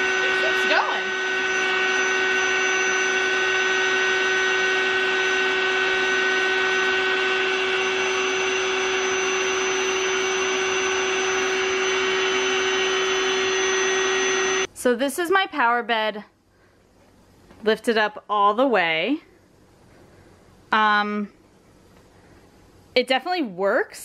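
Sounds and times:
electric air pump motor drone: 0:00.0 - 0:14.7.

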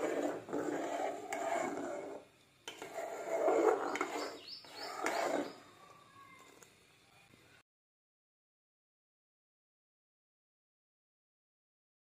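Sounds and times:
spoon scraping steel pot: 0:00.0 - 0:05.7.

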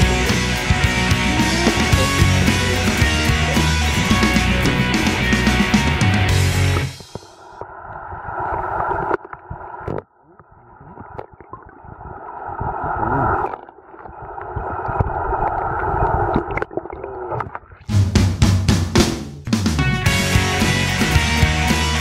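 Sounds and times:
rock music with drums: 0:00.0 - 0:07.4, 0:17.9 - 0:22.0
underwater rushing and bubbling: 0:00.0 - 0:17.9.

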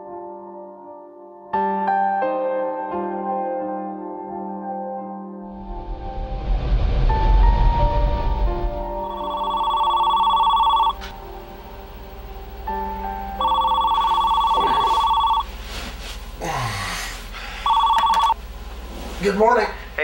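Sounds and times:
telephone ringing: 0:09.0 - 0:11.1, 0:13.4 - 0:15.5, 0:17.6 - 0:18.4.

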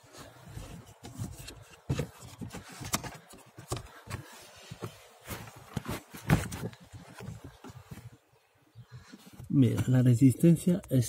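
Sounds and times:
handling rubs and knocks on plastic: 0:00.0 - 0:08.3.

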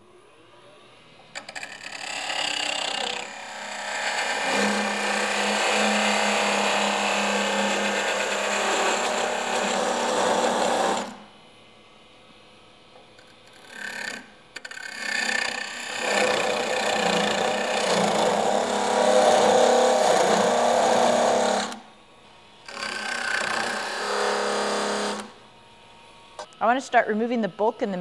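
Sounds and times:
parting tool cutting wood on lathe: 0:01.4 - 0:11.2, 0:13.6 - 0:21.8, 0:22.7 - 0:25.4.

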